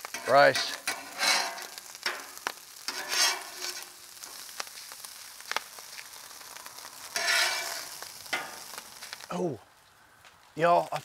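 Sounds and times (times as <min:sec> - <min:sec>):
metal spatula scraping griddle: 0:00.0 - 0:04.5, 0:07.1 - 0:08.8
grains popping: 0:00.0 - 0:09.6
rice sizzling on griddle: 0:00.0 - 0:11.0.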